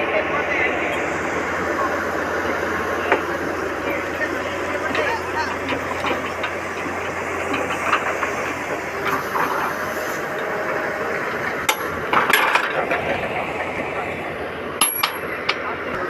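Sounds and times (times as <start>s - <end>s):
hydraulic excavator running: 0.0s - 16.0s
metallic clanks of excavator bucket: 11.6s - 13.2s, 14.8s - 15.6s.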